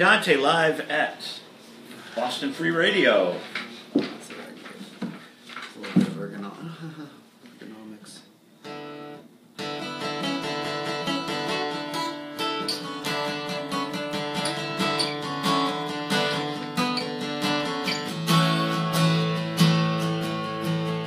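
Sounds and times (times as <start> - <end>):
acoustic guitar strumming: 8.6 - 21.0.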